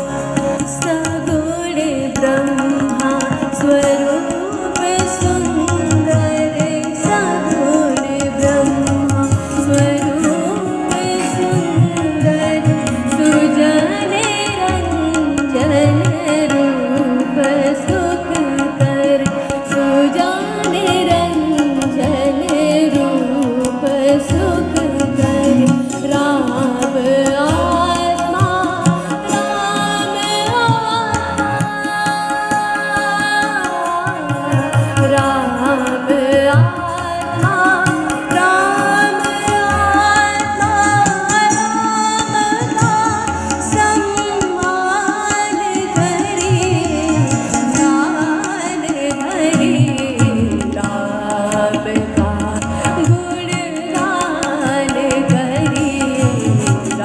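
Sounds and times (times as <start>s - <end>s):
harmonium: 0.0s - 57.0s
person singing devotional song: 0.0s - 57.0s
tabla strokes: 0.0s - 57.0s.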